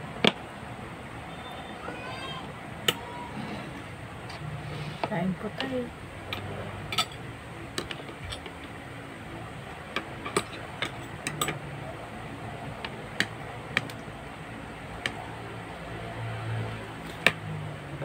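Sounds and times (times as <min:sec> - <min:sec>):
fork clinking and scraping plate: 0:06.3 - 0:07.2, 0:10.2 - 0:11.6.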